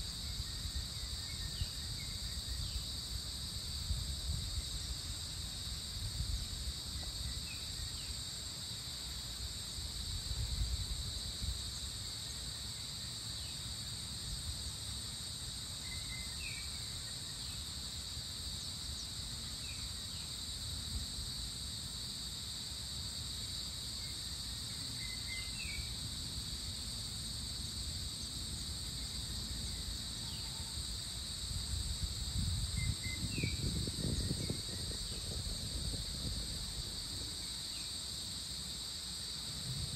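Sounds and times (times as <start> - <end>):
insect chorus drone: 0.0 - 39.9
low gusty rumble: 31.7 - 37.4.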